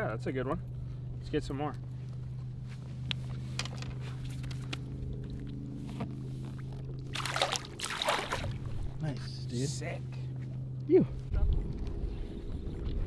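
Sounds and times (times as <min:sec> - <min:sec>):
boat motor humming: 0:00.0 - 0:11.3
fish splashing in water: 0:07.0 - 0:08.7.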